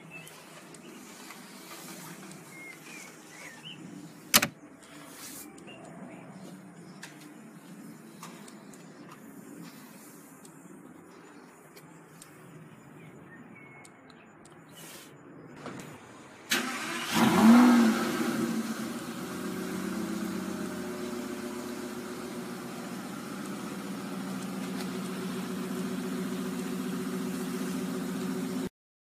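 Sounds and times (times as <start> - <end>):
car starter engaging: 4.3 - 4.6, 16.5 - 19.0
car engine revving and idling: 16.5 - 28.7.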